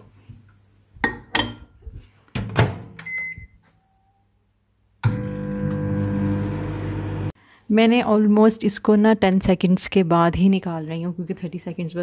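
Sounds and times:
keypad beep: 0:03.0 - 0:03.6
microwave oven humming: 0:05.0 - 0:07.3.

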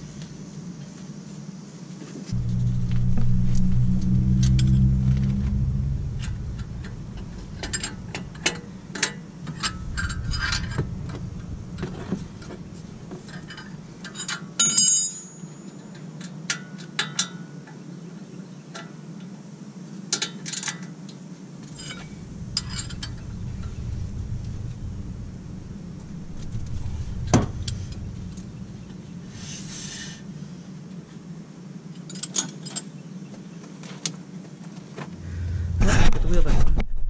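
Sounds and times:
low rumble: 0:02.3 - 0:14.3, 0:21.6 - 0:30.8, 0:35.2 - 0:37.0.

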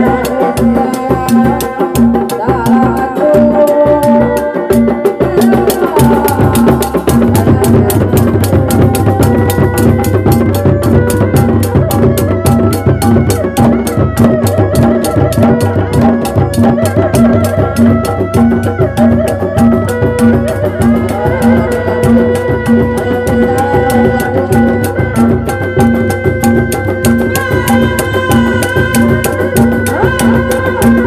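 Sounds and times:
drums beating fast rhythm: 0:00.0 - 0:31.0
horn playing wavering melody: 0:08.6 - 0:31.0.

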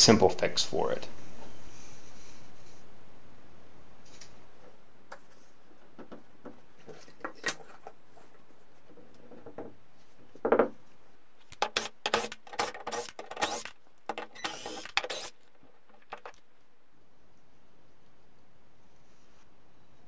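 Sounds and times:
rapid clicks and scrapes: 0:11.5 - 0:16.5
wooden shims scraping under door: 0:11.6 - 0:16.4.

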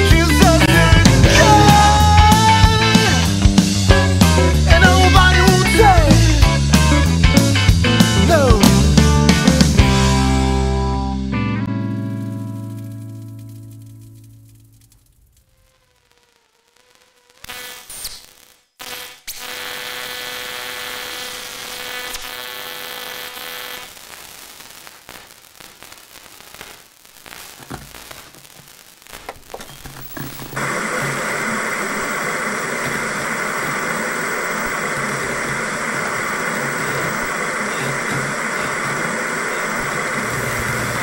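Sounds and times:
television static hiss: 0:00.0 - 0:08.7, 0:14.9 - 0:18.8, 0:19.5 - 0:41.0
electrical hum: 0:29.5 - 0:41.0.

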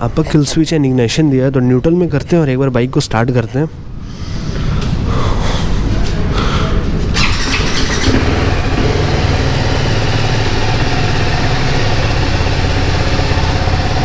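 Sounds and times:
motorcycle engine starting and idling: 0:07.2 - 0:14.0.

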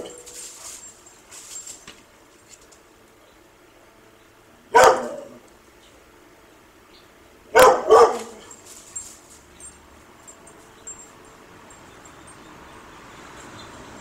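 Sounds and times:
dog barking: 0:04.7 - 0:05.4, 0:07.5 - 0:08.5.

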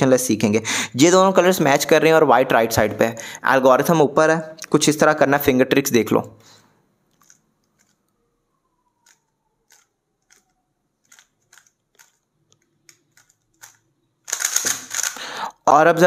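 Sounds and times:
puzzle cube plastic clicks: 0:07.1 - 0:08.2, 0:09.0 - 0:15.3.

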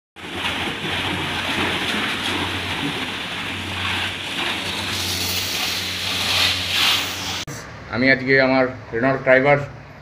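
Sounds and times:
steady low hum: 0:00.2 - 0:10.0
pressure washer spraying water: 0:00.4 - 0:07.5.

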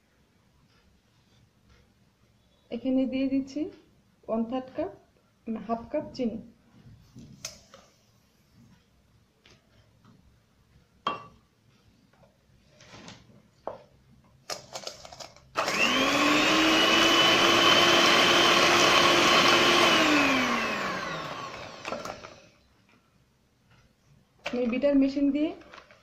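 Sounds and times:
electric hand mixer whirring: 0:15.6 - 0:22.6.

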